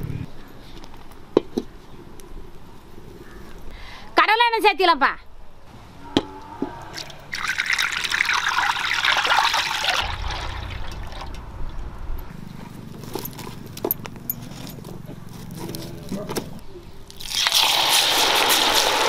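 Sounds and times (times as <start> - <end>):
oil pouring: 6.9 - 11.8, 17.1 - 19.0
low rumble: 10.0 - 12.7.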